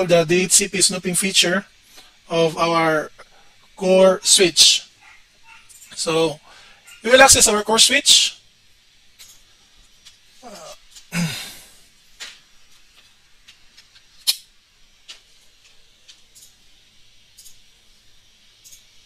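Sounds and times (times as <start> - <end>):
wordless vocal sounds: 10.4 - 11.7
sharp clicks: 13.5 - 16.6.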